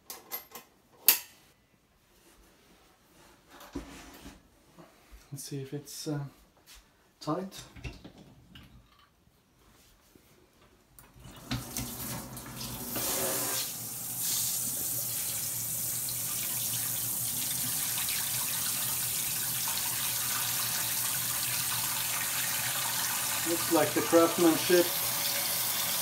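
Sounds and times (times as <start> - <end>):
faucet water filling metal pot: 11.2 - 26.0.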